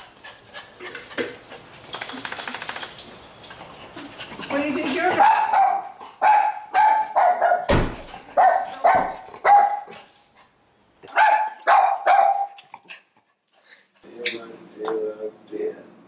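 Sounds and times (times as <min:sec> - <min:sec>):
small dog barking: 0:05.2 - 0:07.7, 0:08.4 - 0:09.9, 0:11.1 - 0:12.6.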